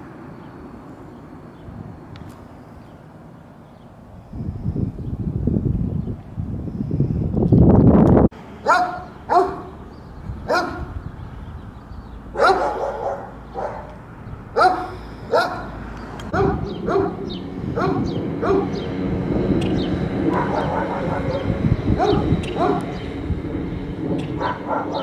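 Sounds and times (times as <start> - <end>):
dog barking: 8.6 - 9.8, 10.5 - 11.0, 12.3 - 14.0, 14.6 - 18.8, 20.2 - 23.0, 24.4 - 25.0
loud rush of noise: 14.0 - 25.0.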